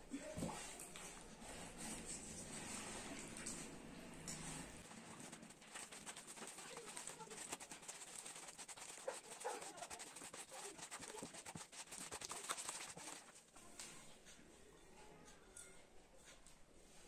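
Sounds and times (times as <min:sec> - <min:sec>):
stick stirring wet cement: 0:00.4 - 0:13.5.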